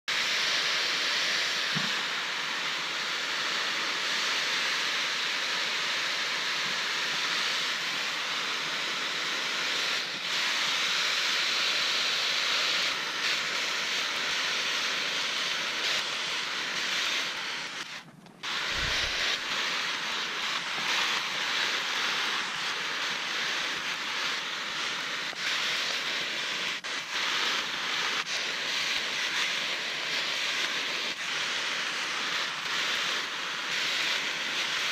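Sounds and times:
water spraying on plastic: 9.1 - 34.9.

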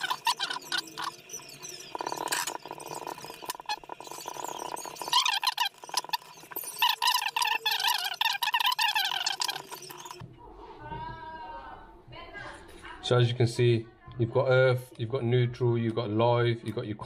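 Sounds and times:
gloves squeaking on plastic: 0.0 - 10.2.

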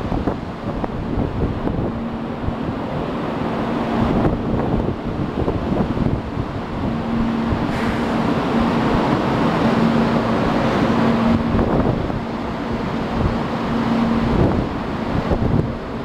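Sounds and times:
train rushing noise: 0.0 - 16.0.

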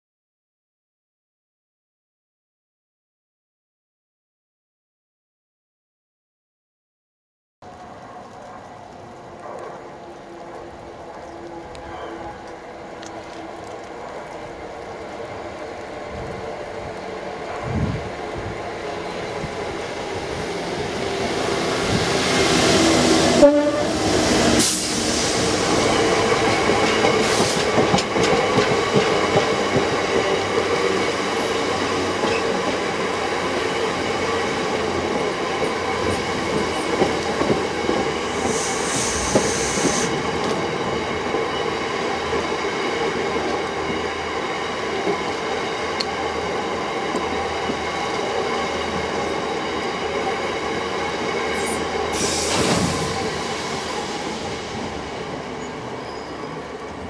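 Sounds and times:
train wheels squealing on rails: 10.2 - 13.5, 21.1 - 57.0
short hisses: 38.5 - 40.2.

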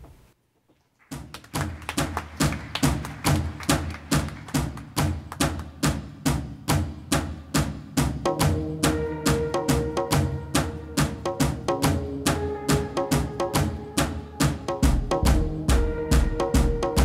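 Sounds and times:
steady drumbeat: 1.1 - 17.0.

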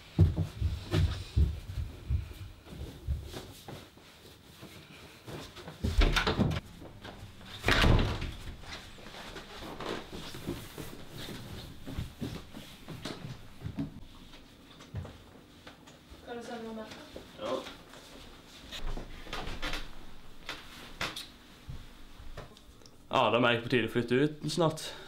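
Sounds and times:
footsteps down wooden stairs: 0.0 - 15.3
door being handled: 5.9 - 6.6, 7.5 - 8.9.

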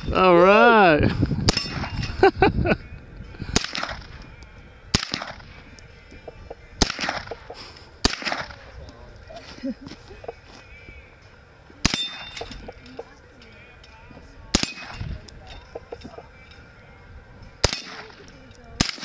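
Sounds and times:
gunshots with echo: 3.5 - 4.2, 4.9 - 5.6, 6.8 - 7.4, 8.0 - 8.6, 14.5 - 15.0, 17.6 - 18.2, 18.8 - 19.0.

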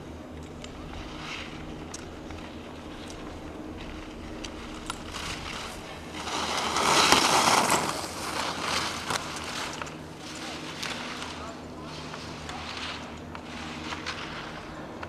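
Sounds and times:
ski edges scraping on snow: 0.8 - 15.0.

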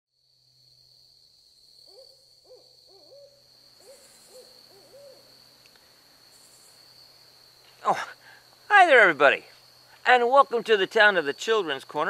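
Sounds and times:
owl hooting: 1.9 - 5.3.

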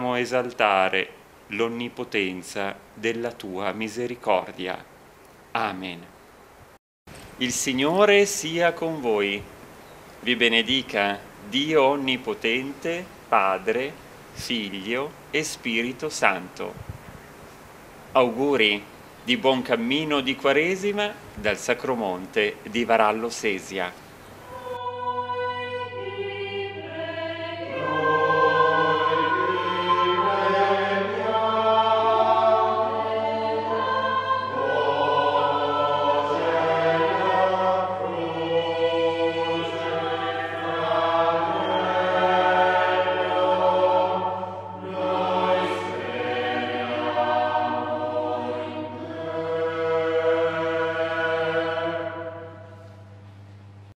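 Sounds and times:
choir singing a chant: 24.5 - 52.8.

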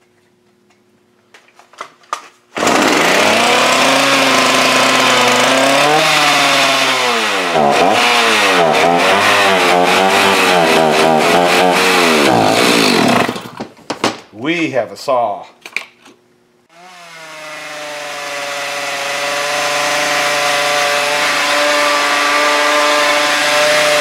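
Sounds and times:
chainsaw engine running and revving: 2.6 - 13.4, 16.7 - 24.0.

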